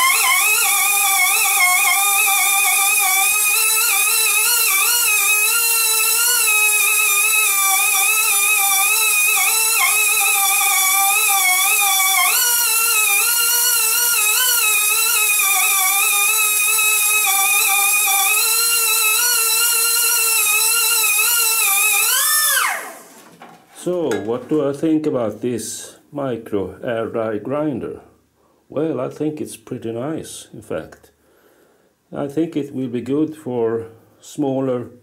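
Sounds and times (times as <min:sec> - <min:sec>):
die grinder whine: 0:00.0 - 0:24.4.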